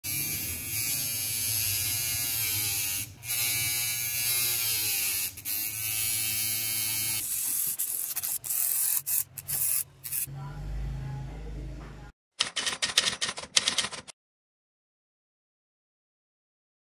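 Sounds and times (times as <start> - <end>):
small motor hum: 0.1 - 10.3
metal tool grinding: 4.1 - 10.3.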